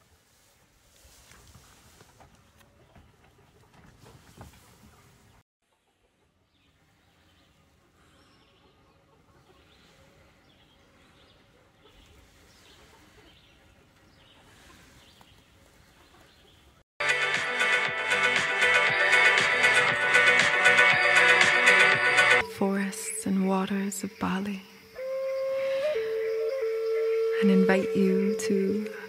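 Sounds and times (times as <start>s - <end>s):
loud music: 17.0s - 22.4s.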